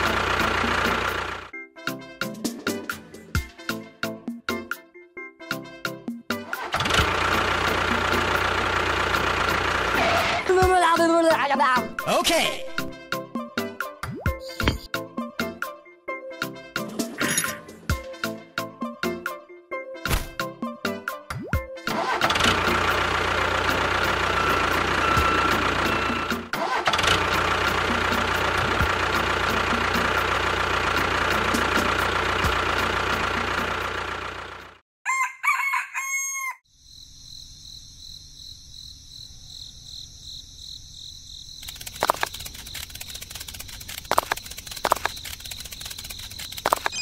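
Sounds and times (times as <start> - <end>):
tractor engine running: 0.0 - 1.5, 6.5 - 10.8, 21.9 - 34.8, 41.6 - 47.0
rooster crowing: 35.0 - 36.7
clicks: 41.6 - 47.0.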